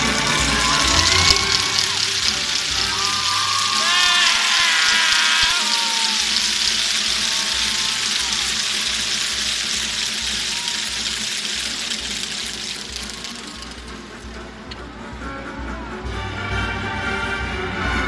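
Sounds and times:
crowd shouts: 0.0 - 13.9
crowd applauding and cheering: 0.0 - 15.1.

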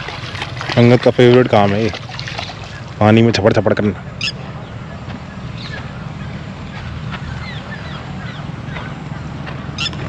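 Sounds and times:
dog splashing in water: 0.0 - 3.0.

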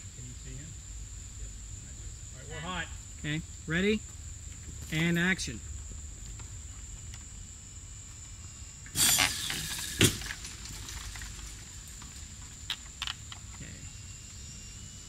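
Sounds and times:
rush of hissing: 8.9 - 12.0
sharp bang: 9.0 - 10.3
high-pitched whine: 13.5 - 15.0.

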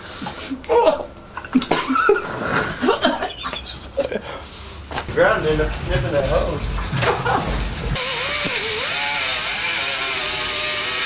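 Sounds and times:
pneumatic grinder whining: 7.9 - 11.0.

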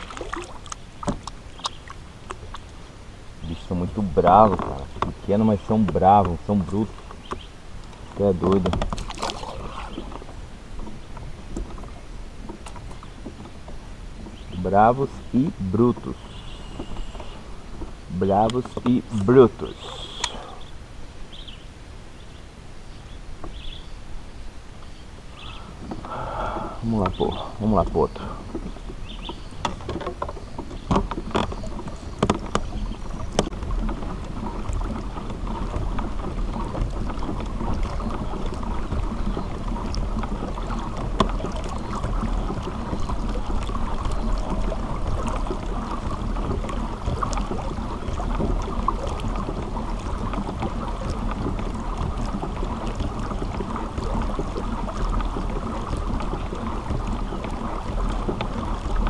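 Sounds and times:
water rushing along hull: 0.0 - 59.0.

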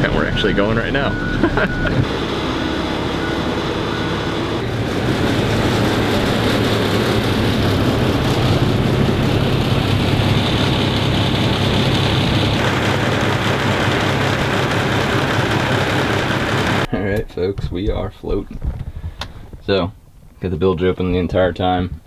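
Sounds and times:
lift engine running: 0.0 - 16.9.

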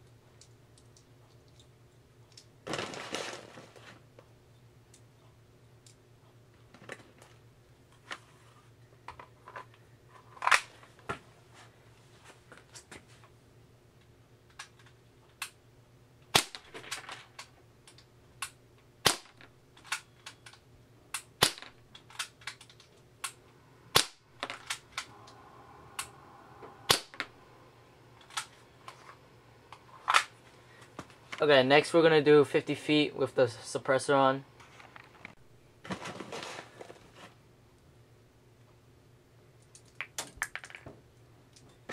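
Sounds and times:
gas pistol shots cracking: 23.9 - 24.2, 26.9 - 27.3.

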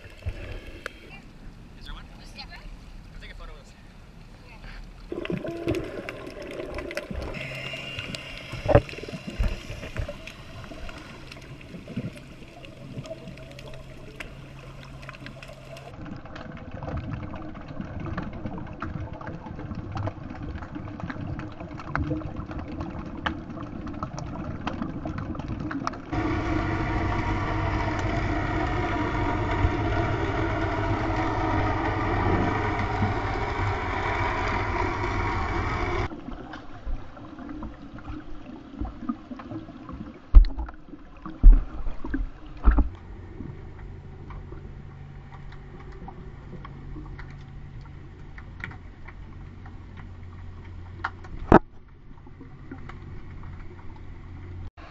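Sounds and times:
motorboat engine drone underwater: 0.0 - 3.1, 4.0 - 54.9
muffled underwater noise: 3.8 - 16.6, 26.1 - 36.1
underwater clicks and knocks: 45.3 - 54.1.

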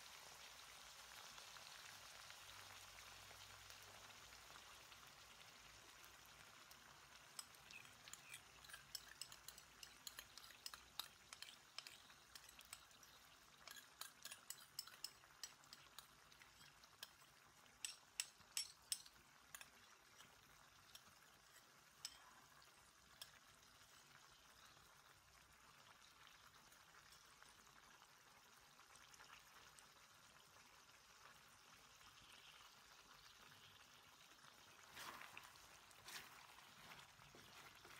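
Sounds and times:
food sizzling in a wok: 0.0 - 37.9
oil popping and crackling: 0.0 - 37.9
sauce pouring: 0.1 - 37.9.

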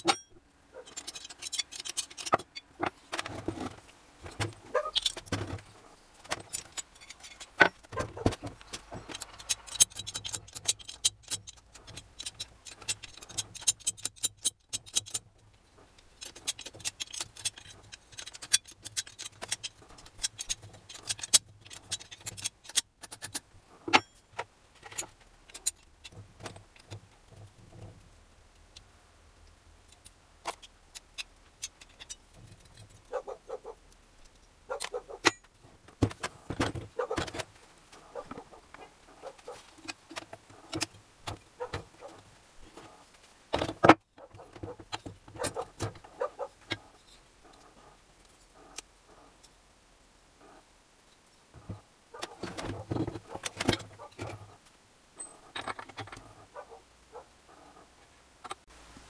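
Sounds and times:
metal tools clinking: 0.0 - 15.3, 16.1 - 24.2, 55.2 - 56.4.

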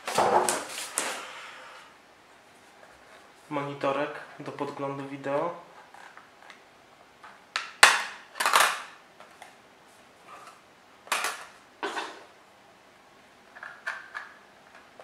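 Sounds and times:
rustling and scraping handling: 2.3 - 4.8.

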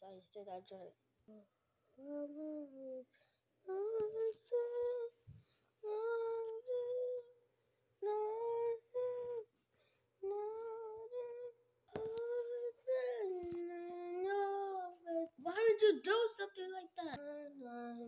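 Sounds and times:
child singing a wordless tune: 0.0 - 5.2, 5.8 - 7.4, 8.0 - 18.0.

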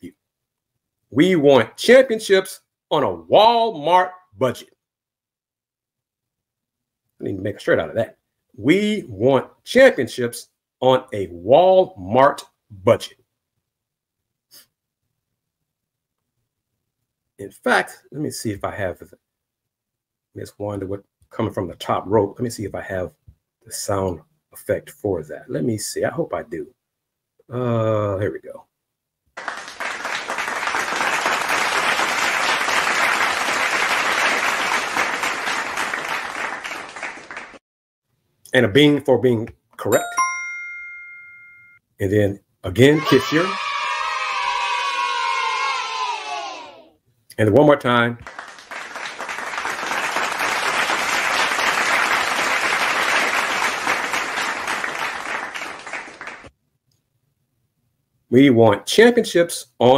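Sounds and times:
crowd clapping: 29.4 - 37.6, 48.2 - 56.5.

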